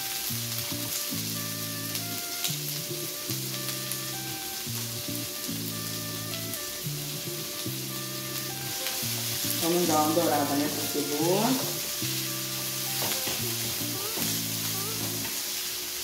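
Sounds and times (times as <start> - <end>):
soft background music: 0.0 - 15.5
onion sizzling in hot oil: 0.0 - 16.0
spatula scraping and tapping wok: 11.9 - 14.4.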